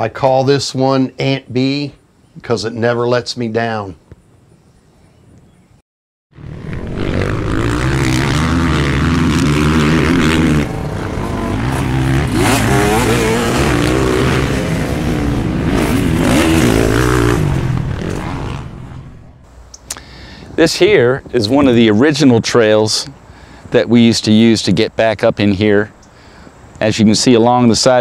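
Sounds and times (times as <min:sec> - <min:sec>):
motorcycle engines revving: 0:06.4 - 0:19.7.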